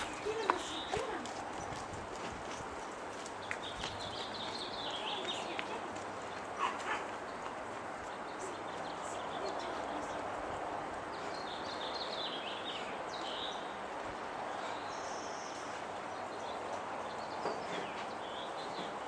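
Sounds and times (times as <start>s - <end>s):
outdoor background noise: 0.0s - 19.0s
small birds chirping: 0.0s - 19.0s.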